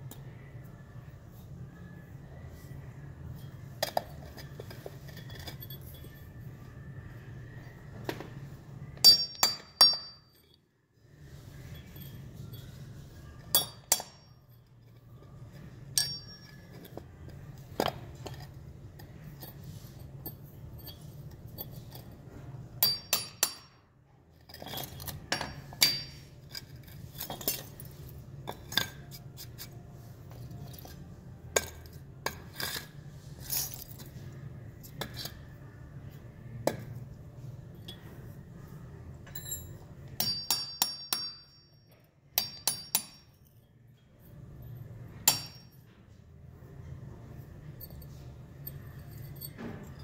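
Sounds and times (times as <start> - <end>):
steady low hum: 0.0 - 50.0
hammer striking steel chisel: 9.0 - 10.5, 13.5 - 14.4, 15.9 - 17.0, 22.8 - 23.8, 24.6 - 26.6, 39.4 - 43.4, 45.2 - 45.9.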